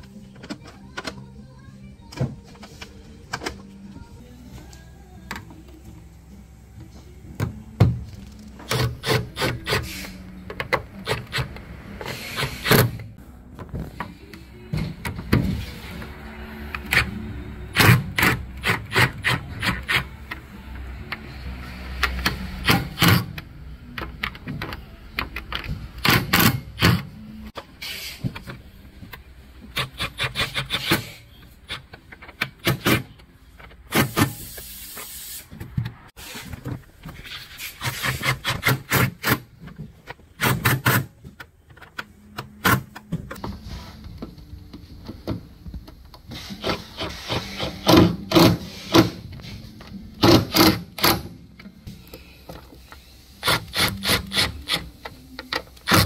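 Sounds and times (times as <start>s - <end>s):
wrench clicking on metal screws: 53.4s - 56.0s.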